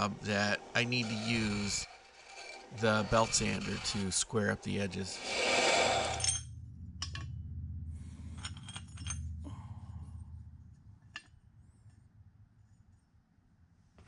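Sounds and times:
low motor hum: 0:05.0 - 0:12.0.

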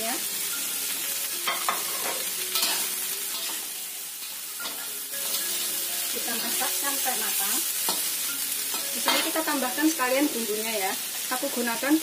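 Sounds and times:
food sizzling in oil: 0:00.0 - 0:12.0
metal spatula scraping a wok: 0:01.4 - 0:09.7.

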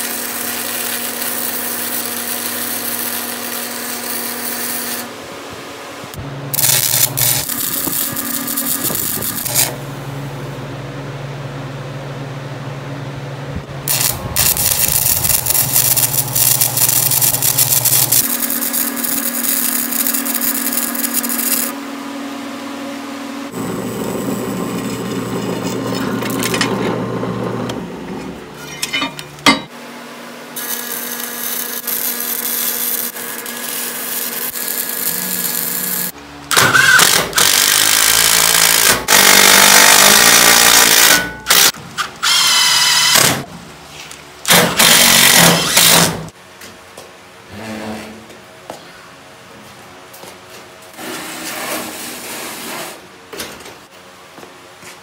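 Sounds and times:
arc welding crackling: 0:00.0 - 0:05.1, 0:06.1 - 0:09.8, 0:13.8 - 0:21.8, 0:23.5 - 0:27.0, 0:30.6 - 0:41.8
steady hum: 0:00.5 - 0:36.6.

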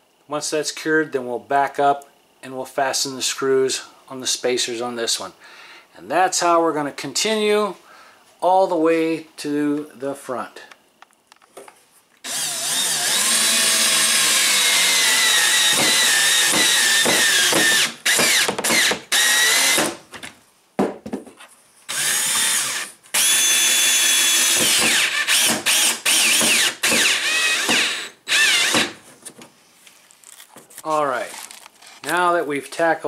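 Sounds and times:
cordless drill motor whining: 0:12.2 - 0:19.9, 0:21.9 - 0:29.0.

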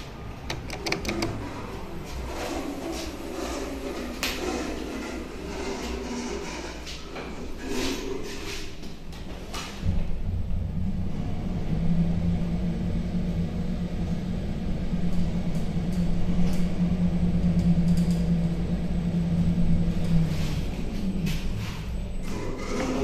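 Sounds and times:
lift motor hum and rumble: 0:00.0 - 0:23.0.

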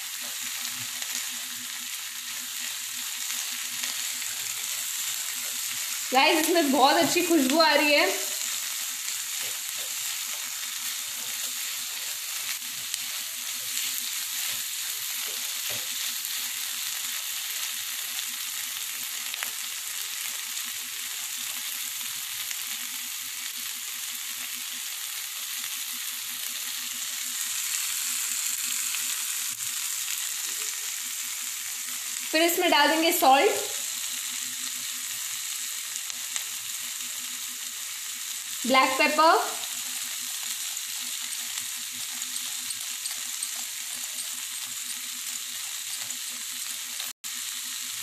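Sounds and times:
vegetables sizzling in frying pan: 0:00.0 - 0:48.0
spatula stirring: 0:39.7 - 0:47.1.

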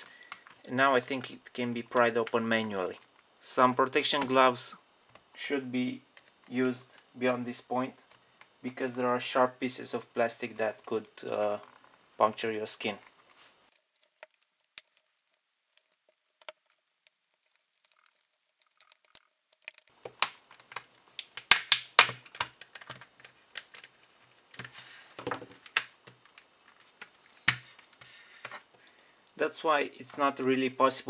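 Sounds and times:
plastic seam snapping: 0:13.8 - 0:23.9
plastic case clicking and creaking: 0:17.4 - 0:28.6.

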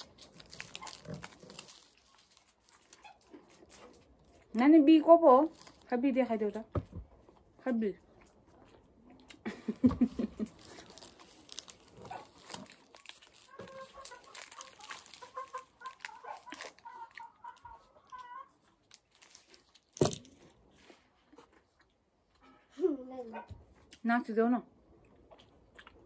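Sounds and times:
wrapper crinkling and tearing: 0:00.0 - 0:04.3, 0:05.4 - 0:06.0, 0:10.2 - 0:20.5.

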